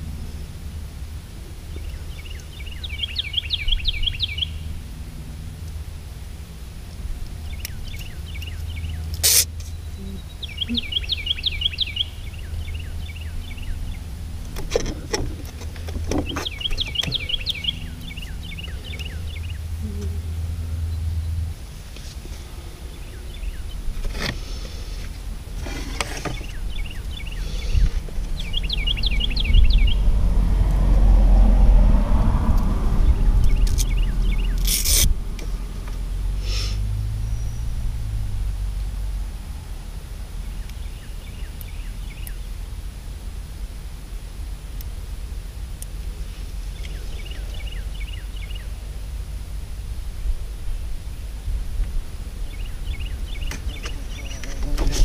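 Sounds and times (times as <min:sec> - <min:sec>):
steady low hum: 0:00.0 - 0:55.0
vehicle rumble: 0:00.0 - 0:55.0
songbird trilling: 0:01.7 - 0:04.7, 0:07.4 - 0:14.1, 0:16.1 - 0:20.2, 0:26.2 - 0:30.0, 0:33.4 - 0:35.0, 0:46.7 - 0:48.8, 0:52.5 - 0:54.9.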